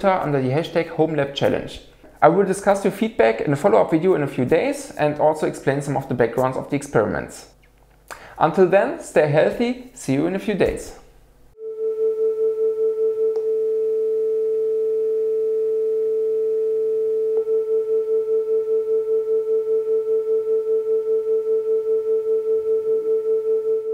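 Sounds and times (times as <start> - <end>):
beating sine tones: 11.5 - 23.9.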